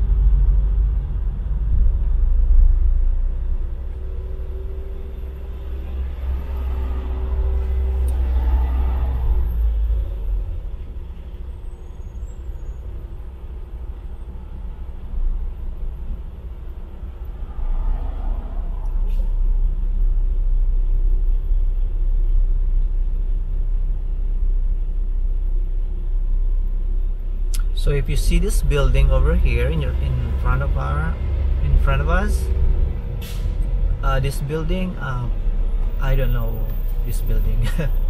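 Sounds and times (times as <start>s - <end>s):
car engine and tyres rumbling: 0.0s - 38.0s.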